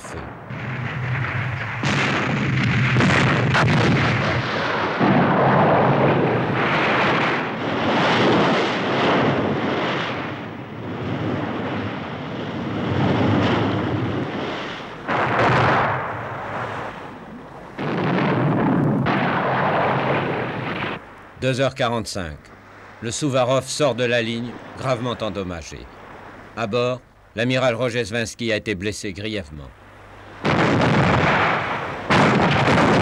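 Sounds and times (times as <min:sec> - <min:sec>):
heavy guns firing: 0:00.0 - 0:10.4, 0:12.9 - 0:17.1, 0:17.8 - 0:21.0, 0:30.4 - 0:33.0
shells bursting: 0:00.0 - 0:23.0, 0:29.7 - 0:33.0.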